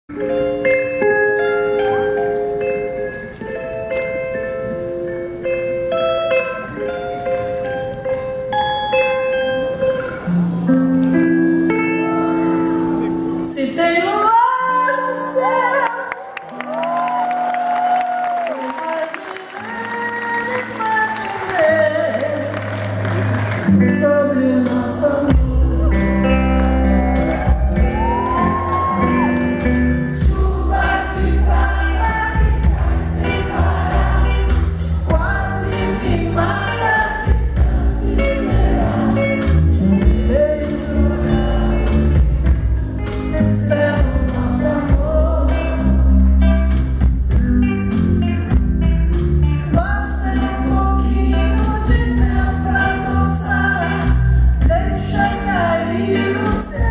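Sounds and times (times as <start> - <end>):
woman singing into a microphone: 13.4 - 16.1, 18.6 - 22.6, 23.8 - 26.4, 30.1 - 37.6, 39.7 - 42.0, 43.2 - 46.1, 49.7 - 56.9
electric bass: 22.5 - 56.9
drums: 24.5 - 56.9.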